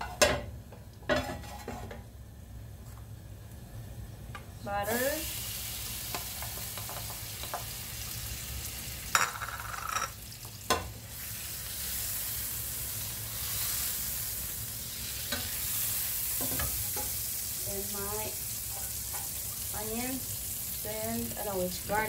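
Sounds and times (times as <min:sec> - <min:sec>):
butter sizzling in a frying pan: 0:04.7 - 0:22.0.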